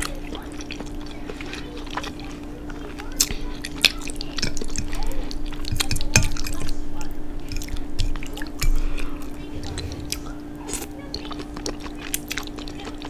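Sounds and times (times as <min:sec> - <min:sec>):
wet chewing and mouth clicks: 0:00.0 - 0:06.7, 0:07.4 - 0:10.2
low hum: 0:09.3 - 0:11.0.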